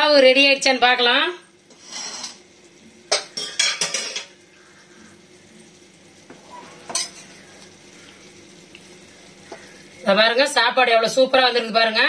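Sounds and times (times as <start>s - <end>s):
spatula scraping metal pot: 1.7s - 2.4s.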